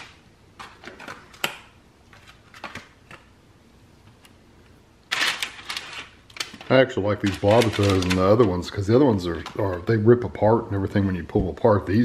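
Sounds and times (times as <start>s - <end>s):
parchment paper rustling: 5.1s - 10.0s.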